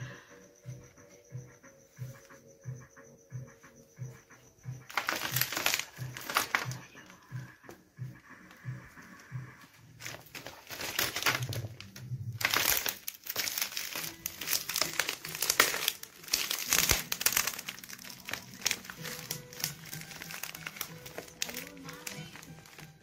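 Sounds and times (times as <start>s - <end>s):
plastic crackling and creaking underfoot: 4.8s - 7.8s, 8.5s - 23.0s.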